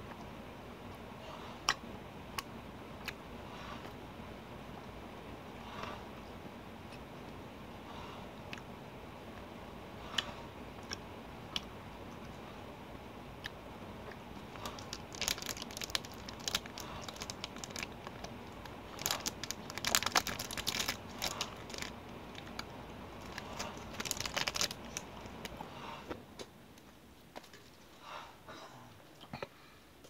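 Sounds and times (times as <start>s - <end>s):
candy wrapper crinkling: 14.4s - 25.6s.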